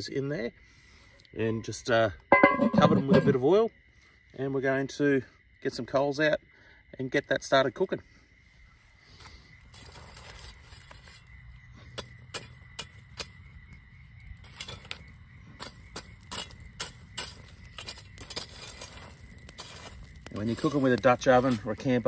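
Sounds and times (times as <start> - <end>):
shovel scraping coals: 2.3 - 3.4, 9.2 - 13.4, 14.4 - 22.0
coals crackling: 6.7 - 22.0.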